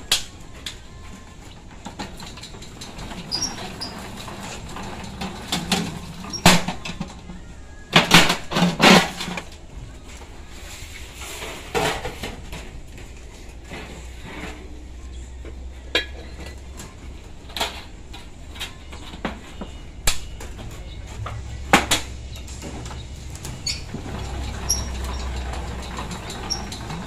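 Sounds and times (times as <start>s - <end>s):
metal sheet rattling and clanking: 7.9s - 9.5s.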